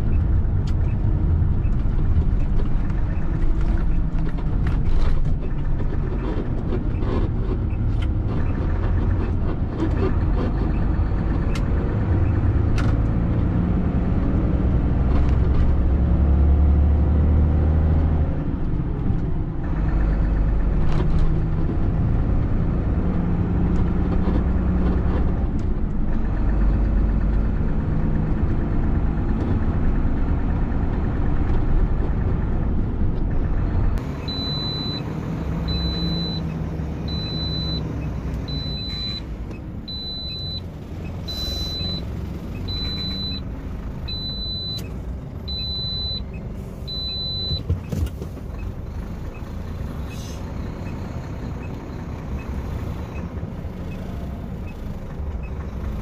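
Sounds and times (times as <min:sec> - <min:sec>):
road noise inside cab: 0:00.0 - 0:56.0
truck diesel engine rumble: 0:00.0 - 0:56.0
short high beeps: 0:34.2 - 0:35.1, 0:35.7 - 0:36.5, 0:37.1 - 0:37.8, 0:38.5 - 0:39.2, 0:39.9 - 0:40.6, 0:41.2 - 0:43.4, 0:45.5 - 0:46.3.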